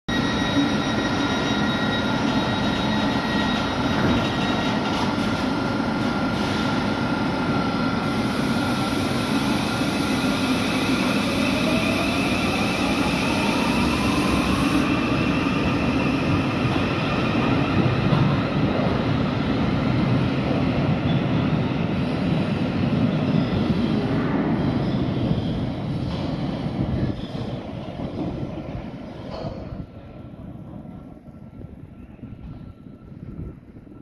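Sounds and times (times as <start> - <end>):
electric train equipment humming: 0.1 - 20.5
traction motors whining: 9.3 - 18.4.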